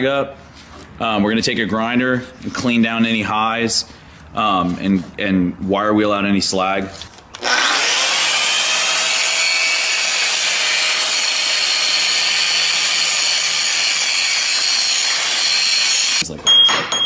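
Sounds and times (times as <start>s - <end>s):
angle grinder grinding metal: 7.4s - 16.2s.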